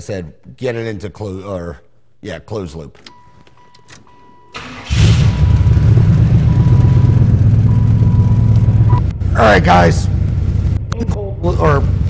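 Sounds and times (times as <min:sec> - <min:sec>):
car engine starting and running: 0:03.1 - 0:12.0.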